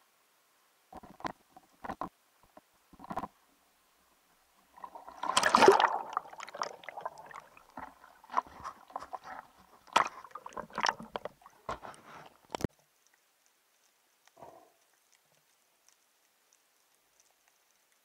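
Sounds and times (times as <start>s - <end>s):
underwater gurgles: 4.6s - 12.6s
sea water splashing: 4.7s - 12.6s.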